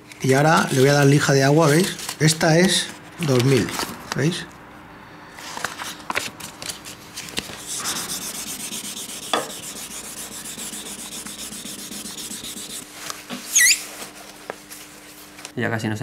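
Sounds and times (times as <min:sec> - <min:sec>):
wet sandpaper rubbing: 0:00.2 - 0:03.6, 0:07.4 - 0:12.9.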